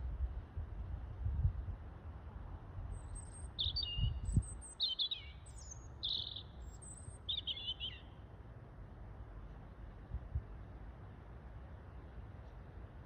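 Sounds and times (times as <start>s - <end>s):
songbird twittering: 2.9s - 8.1s.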